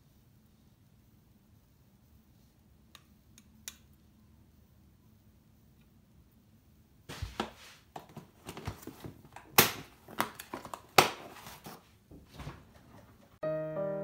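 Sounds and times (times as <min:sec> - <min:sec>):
kitchen items knocking and rustling: 0:07.1 - 0:13.4
music: 0:13.4 - 0:14.0.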